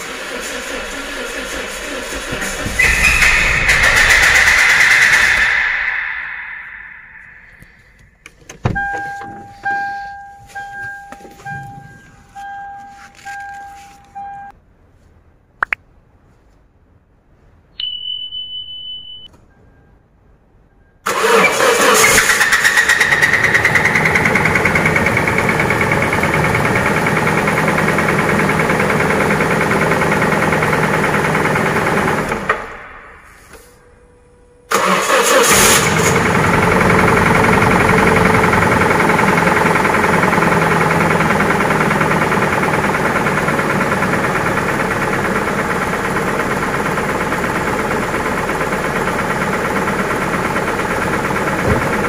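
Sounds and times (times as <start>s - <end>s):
dashboard warning chime: 8.6s - 14.6s, 17.8s - 21.0s
short high beep: 8.8s - 14.5s, 17.8s - 20.0s
engine running with rapid knocking: 21.2s - 32.8s, 34.7s - 52.0s.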